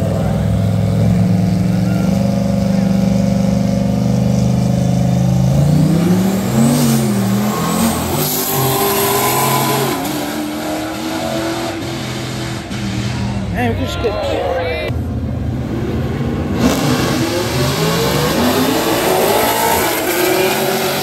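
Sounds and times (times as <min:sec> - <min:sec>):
truck and car engines accelerating: 0:00.0 - 0:13.9, 0:14.9 - 0:21.0.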